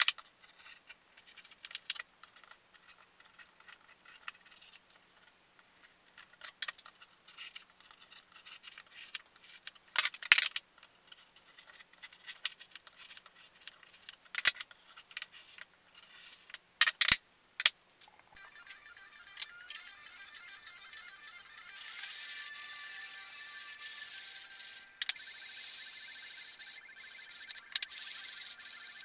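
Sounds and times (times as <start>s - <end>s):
faint scratching and clicking: 0.0s - 9.8s.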